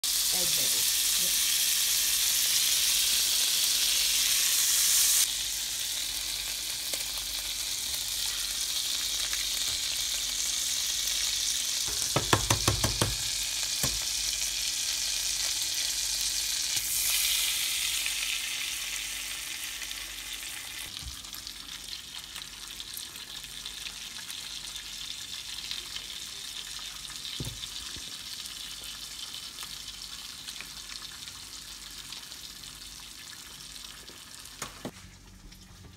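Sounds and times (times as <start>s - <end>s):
butter sizzling in a skillet: 0.0s - 34.9s
eggs frying: 0.0s - 35.9s
sharp knocks: 11.9s - 13.2s.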